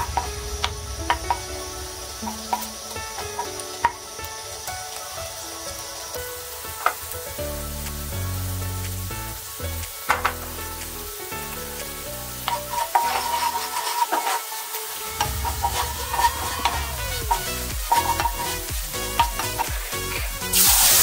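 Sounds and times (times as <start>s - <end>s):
background music with held notes: 0.0s - 21.0s
garlic sizzling in hot oil: 0.0s - 21.0s
wooden spoon knocking against pan: 15.2s - 18.5s, 19.2s - 19.7s.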